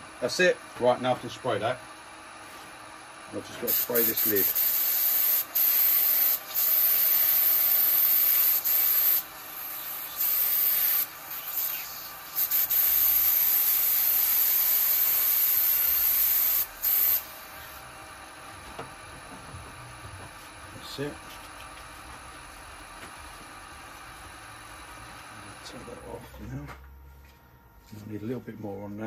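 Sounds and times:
aerosol spray can hissing: 3.7s - 17.4s.

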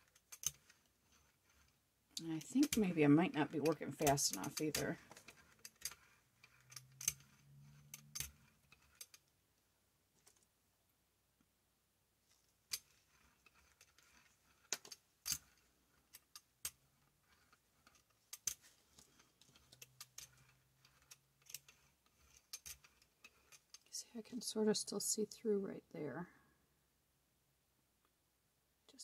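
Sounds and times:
brayer rolling over paint: 0.0s - 9.4s, 12.2s - 24.2s
sharp clicks and ticks: 1.5s - 9.2s.

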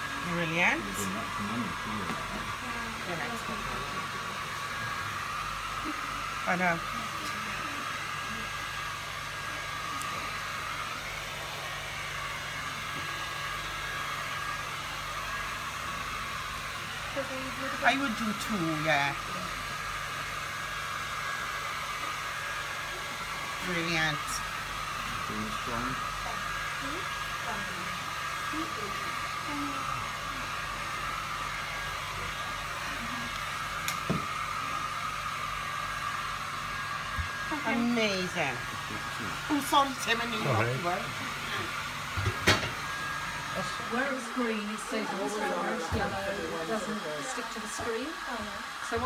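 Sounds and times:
electric blower whirring: 0.0s - 49.0s
hair dryer running: 0.0s - 49.0s.

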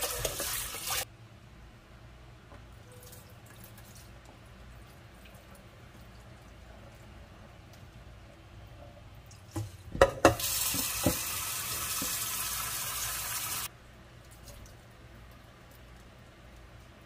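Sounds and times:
tap water running into a pan: 0.0s - 1.0s, 10.3s - 13.7s.

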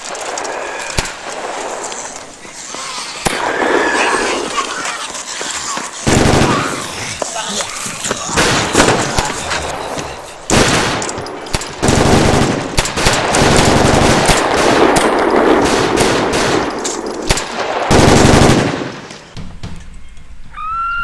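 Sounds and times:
automatic gunfire bursts: 6.0s - 6.8s, 10.5s - 16.7s, 17.3s - 19.0s.

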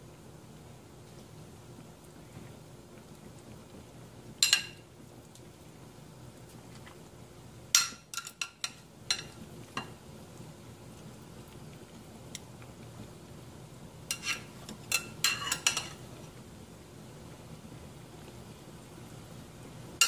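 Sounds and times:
metal tongs clinking on a pot: 4.4s - 4.8s, 7.7s - 10.0s, 14.1s - 16.0s.

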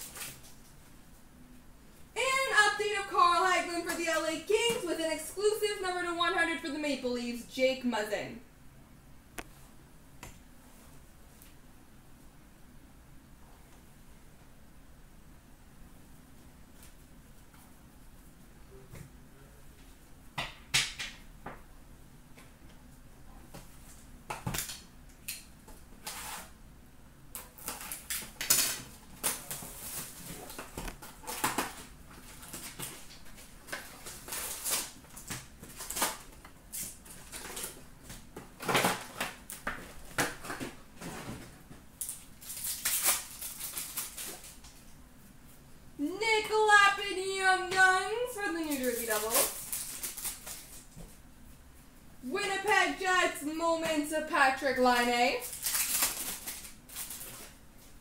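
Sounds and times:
wrapper crinkling: 27.4s - 37.9s, 42.0s - 44.9s, 48.5s - 51.0s, 55.4s - 58.0s.

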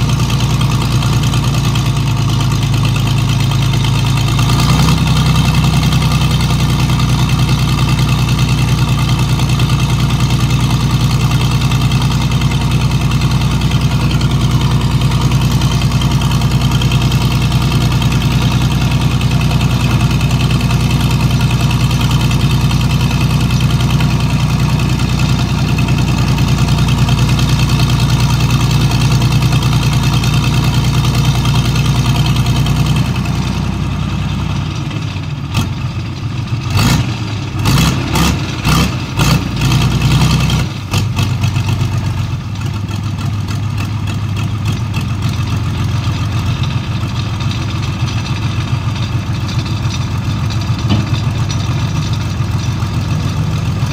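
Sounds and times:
engines running steadily: 0.0s - 53.9s
knocks: 49.5s - 53.3s.

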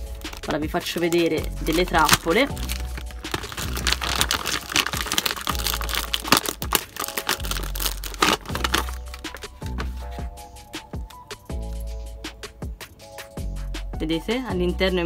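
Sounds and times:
paper bag crinkling: 0.0s - 10.0s
background music: 0.0s - 15.0s.

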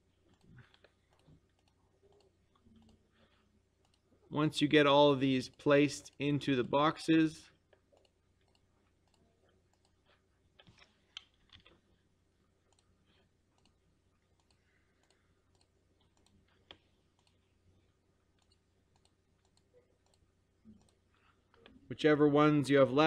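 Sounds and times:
computer mouse clicks: 0.3s - 3.0s, 3.8s - 4.0s, 7.7s - 11.8s, 12.7s - 17.4s, 18.4s - 21.8s.

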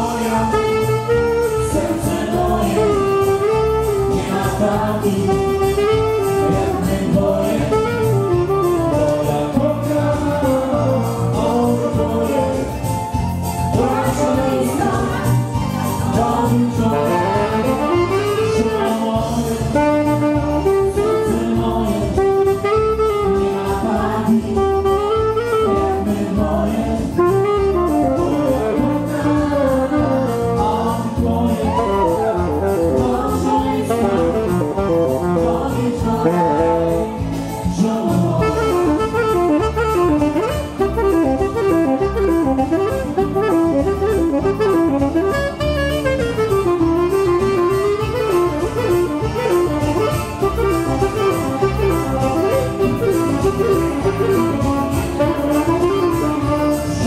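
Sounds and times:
keyboard accompaniment: 0.0s - 57.0s
saxophone melody: 0.0s - 57.0s.

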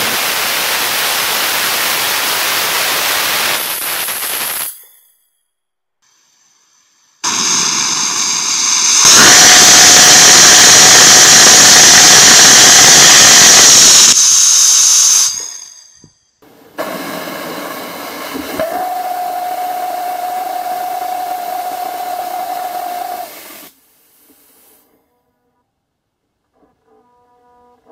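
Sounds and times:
gas flow hiss: 0.0s - 4.8s, 6.0s - 16.1s, 16.8s - 24.8s
rocket engine roaring: 7.2s - 15.7s.

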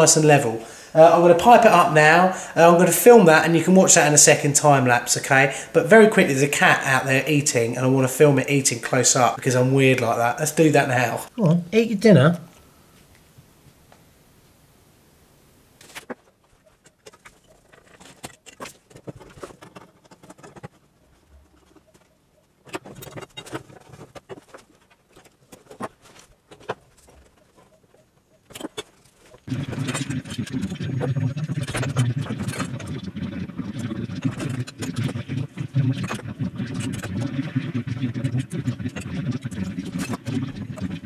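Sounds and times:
loud steady rough noise: 29.5s - 41.0s.

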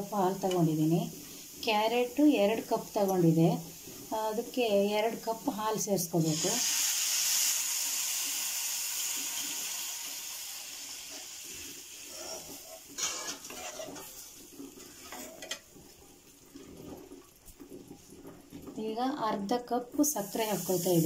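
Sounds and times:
milk sizzling in hot pan: 0.0s - 21.0s
steel spoon scraping a pan: 12.0s - 15.7s.

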